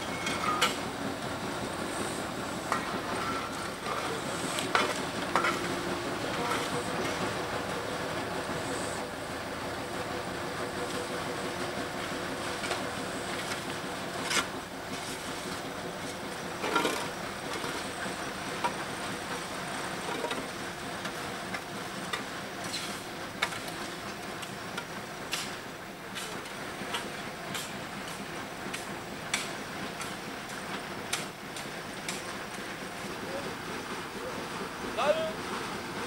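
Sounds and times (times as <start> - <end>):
sharp metallic clanks and knocks: 0.0 - 0.8, 2.7 - 5.7
faint engine hum: 0.0 - 36.0
steady hiss: 1.2 - 7.3.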